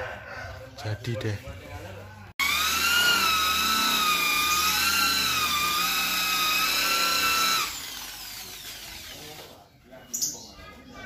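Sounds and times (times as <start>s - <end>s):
electric polisher whining: 2.4s - 9.1s.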